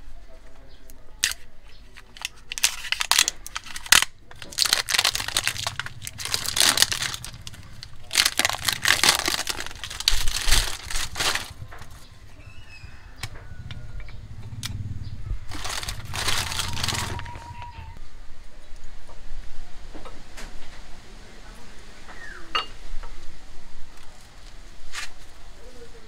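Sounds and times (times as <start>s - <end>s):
plastic wrapping crinkling and tearing: 1.2s - 12.0s, 15.5s - 18.0s.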